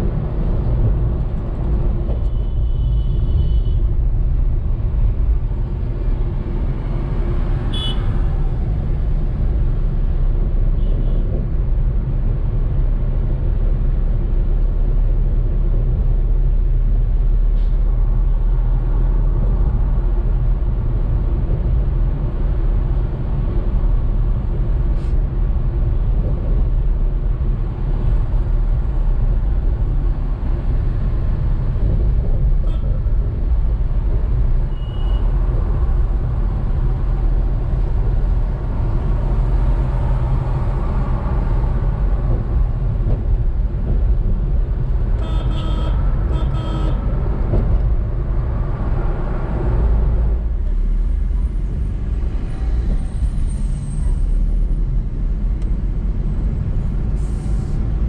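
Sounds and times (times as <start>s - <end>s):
car road and engine rumble: 0.0s - 58.0s
short car horn toots: 45.2s - 47.0s.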